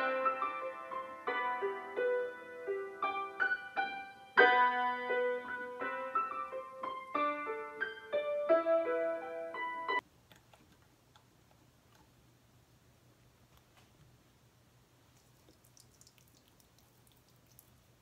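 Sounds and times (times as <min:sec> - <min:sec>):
digital piano slow melody: 0:00.0 - 0:10.0.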